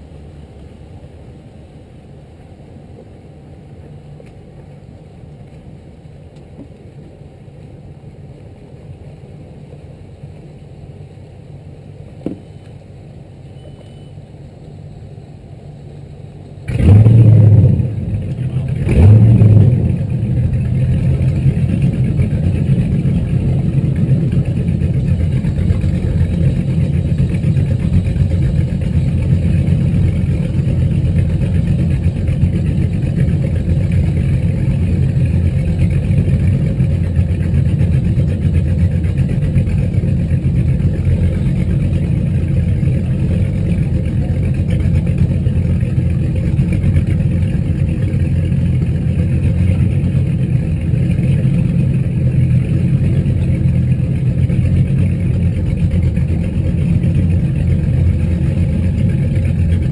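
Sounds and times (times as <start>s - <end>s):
boat engines idling: 2.9s - 59.9s
boat engines starting: 16.7s - 59.9s.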